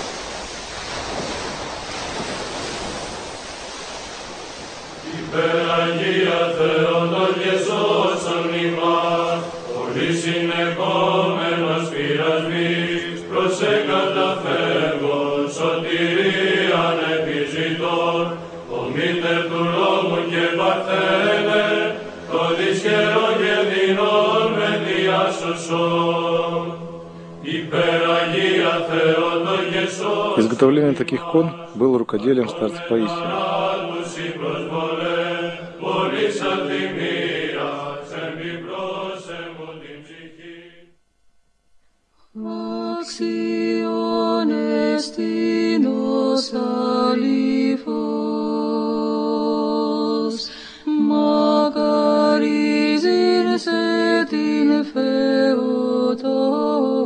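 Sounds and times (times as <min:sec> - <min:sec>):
steady rushing noise: 0:00.0 - 0:40.8
church chant over drone: 0:04.9 - 0:41.1, 0:42.3 - 0:57.0.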